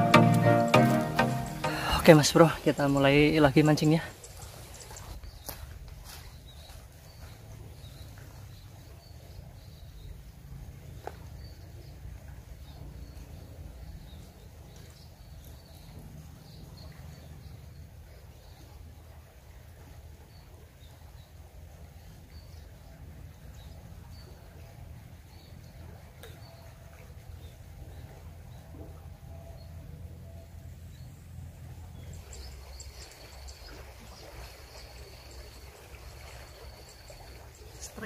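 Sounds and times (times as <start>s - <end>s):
thin high tone: 0.0s - 3.0s.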